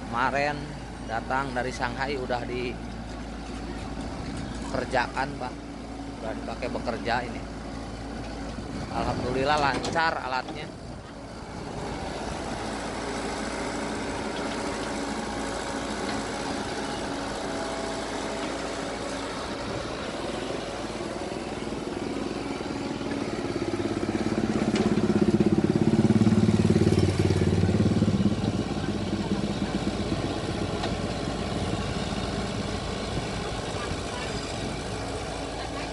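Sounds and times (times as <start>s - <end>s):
excavator diesel engine running: 0.0s - 35.9s.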